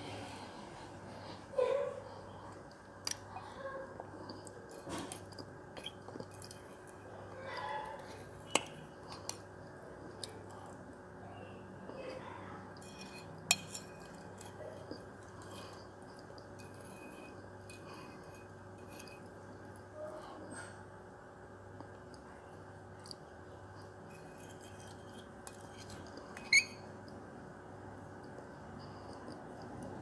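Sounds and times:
spoon scraping a glass: 12.8 - 19.4, 24.0 - 26.9.

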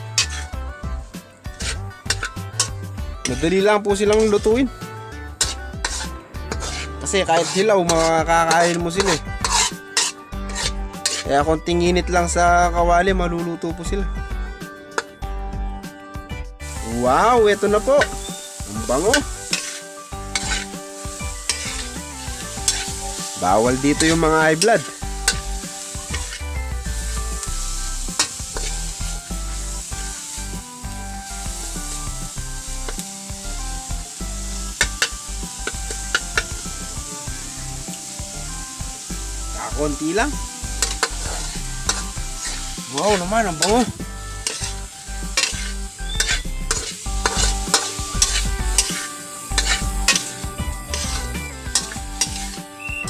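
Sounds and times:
metal spatula scraping pan: 0.0 - 0.6, 1.4 - 4.6, 5.2 - 11.4, 16.7 - 30.8, 34.7 - 36.9, 39.9 - 53.0
food sizzling in a wok: 0.0 - 12.9, 13.6 - 15.3, 16.6 - 53.0
background music: 0.0 - 53.0
spatula clinking against pan: 7.4 - 11.3, 45.4 - 50.3, 50.9 - 53.0.

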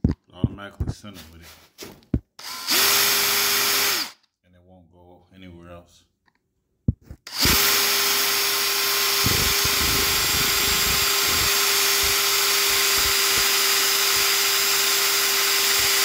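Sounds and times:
power drill whining: 2.4 - 4.3, 7.2 - 16.0
drill bit chattering on metal: 7.3 - 16.0.

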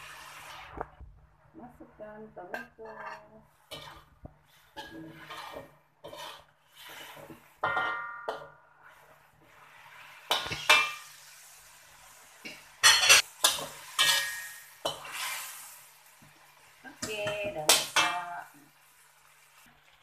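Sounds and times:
spatula scraping metal wok: 2.4 - 8.1, 12.1 - 16.0.

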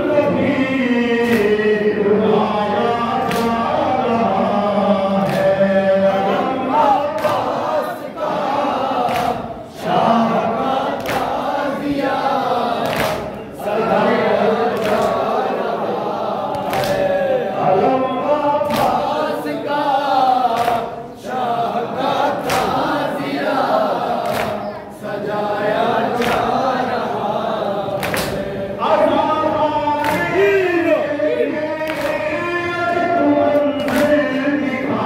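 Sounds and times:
crowd singing in unison: 0.0 - 35.0
man chanting through a microphone: 0.0 - 35.0
chest-beating slaps: 3.2 - 3.7, 5.2 - 5.7, 7.1 - 7.7, 9.0 - 9.6, 10.9 - 11.6, 12.7 - 13.4, 14.7 - 15.3, 16.5 - 17.1, 18.6 - 19.2, 22.1 - 23.0, 24.2 - 24.8, 28.0 - 28.5, 30.0 - 30.4, 31.8 - 32.3.

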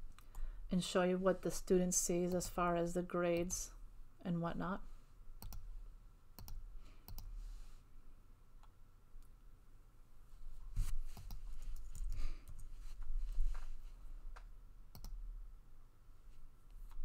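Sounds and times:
low steady hum: 0.0 - 17.0
computer mouse clicks: 5.4 - 5.7, 6.4 - 7.4, 11.1 - 12.7, 14.3 - 15.2.

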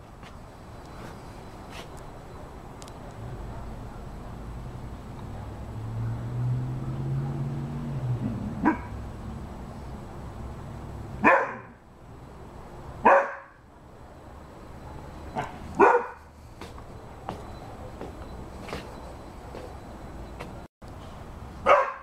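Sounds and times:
dog barking: 8.6 - 9.0, 11.2 - 11.8, 13.0 - 13.6, 15.0 - 16.3, 21.6 - 22.0.

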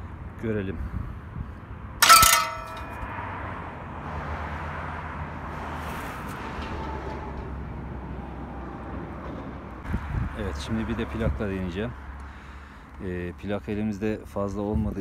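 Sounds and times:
metallic clang of throwing arm: 2.0 - 3.1.

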